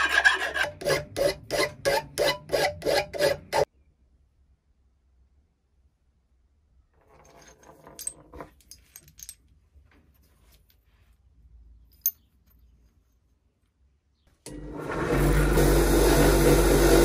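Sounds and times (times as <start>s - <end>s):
metal bolts and nuts clinking: 7.0s - 9.6s, 11.9s - 12.7s.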